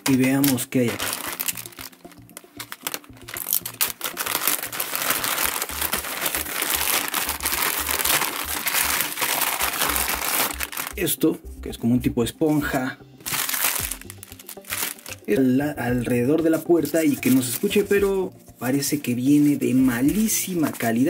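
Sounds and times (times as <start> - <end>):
plastic bag crinkling and tearing: 0.0 - 11.0, 13.2 - 15.3, 17.0 - 18.1
plastic wrapping rustling: 0.0 - 11.1, 12.5 - 15.5, 16.8 - 21.0.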